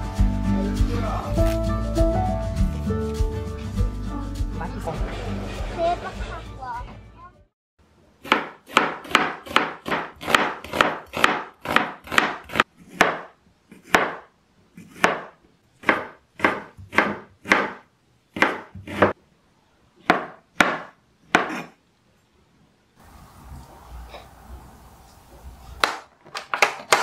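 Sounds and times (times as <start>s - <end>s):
knife chopping on cutting board: 8.2s - 19.2s, 20.0s - 21.7s.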